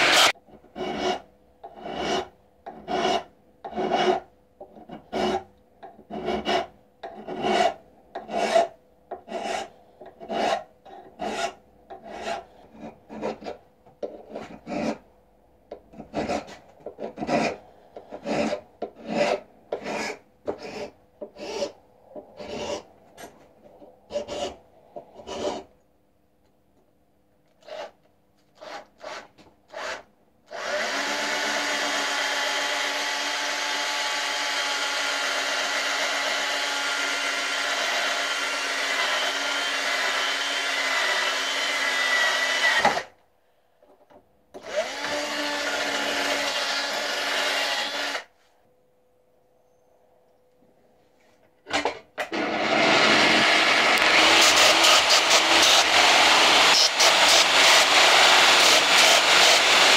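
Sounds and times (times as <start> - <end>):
hand file rasping: 0.0 - 15.0, 15.7 - 25.7, 27.6 - 28.0, 54.0 - 59.9.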